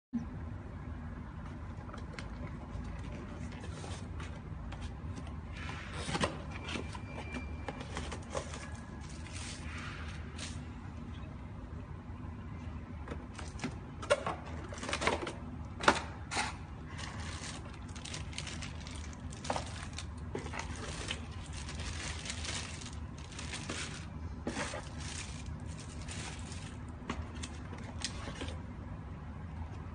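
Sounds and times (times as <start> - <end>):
plastic bags crinkling: 7.9 - 10.6, 16.9 - 28.6.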